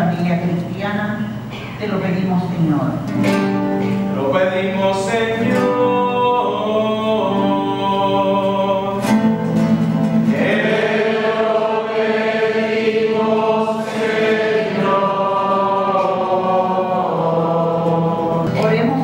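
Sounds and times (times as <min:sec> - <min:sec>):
acoustic guitar: 0:00.0 - 0:19.0
choir singing: 0:05.3 - 0:09.0, 0:10.2 - 0:19.0.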